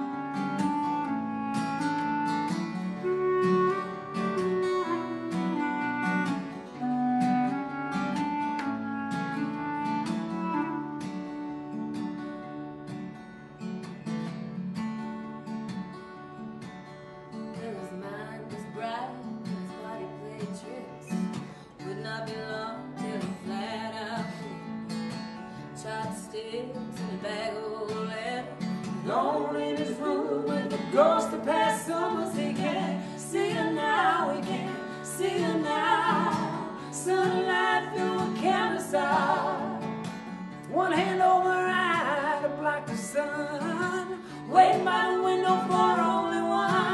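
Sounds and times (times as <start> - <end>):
acoustic guitar strumming: 0.0 - 46.9
woman singing: 17.5 - 24.6, 25.7 - 46.9.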